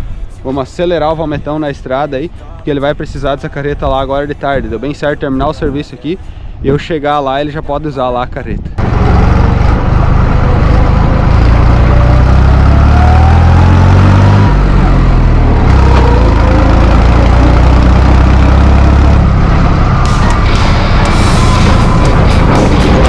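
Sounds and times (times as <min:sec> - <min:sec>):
tractor diesel engine running: 0:08.8 - 0:23.0.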